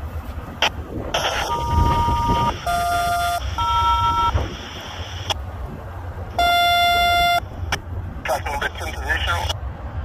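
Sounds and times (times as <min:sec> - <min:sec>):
radio scanner touch-tone beeps: 0:01.2 - 0:04.4, 0:06.4 - 0:07.4.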